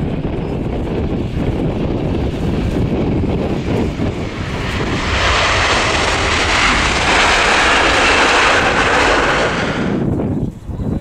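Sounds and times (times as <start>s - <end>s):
jet engines rushing: 0.0s - 10.3s.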